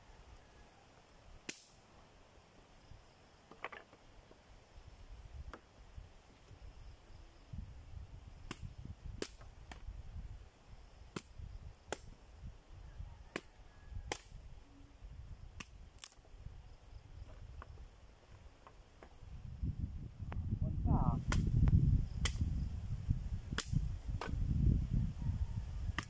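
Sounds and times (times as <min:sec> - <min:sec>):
dead branches snapping: 0:01.5 - 0:01.8, 0:08.5 - 0:09.8, 0:15.6 - 0:16.2, 0:23.6 - 0:24.3.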